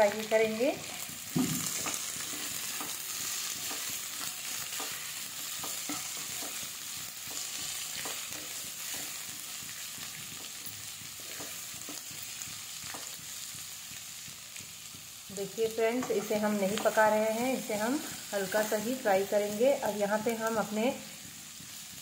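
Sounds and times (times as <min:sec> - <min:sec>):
vegetables sizzling in oil: 0:00.0 - 0:22.0
spatula scraping pan: 0:00.8 - 0:15.2.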